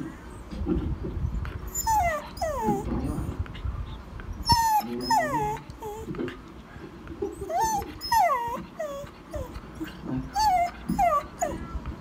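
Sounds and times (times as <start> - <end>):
dog whimpering: 1.7 - 3.5, 4.4 - 6.2, 7.2 - 11.8.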